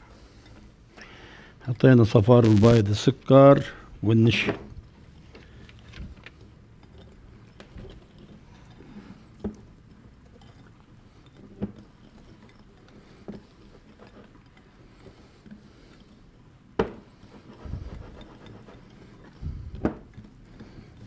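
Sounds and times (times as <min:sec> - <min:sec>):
whisk pattering in a bowl: 0:00.0 - 0:21.0
whisk knocking bowl: 0:04.3 - 0:21.0.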